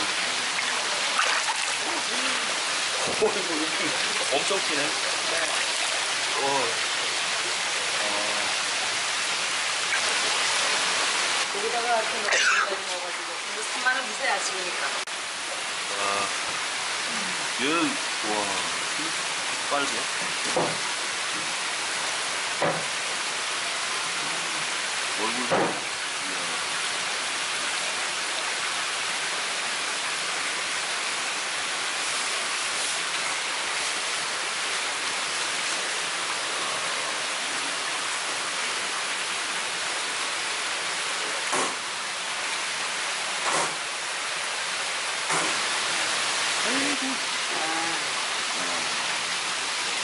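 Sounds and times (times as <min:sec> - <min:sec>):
running water into a tank: 0:00.0 - 0:50.0
sharp knocks: 0:25.5 - 0:25.8, 0:43.4 - 0:43.8.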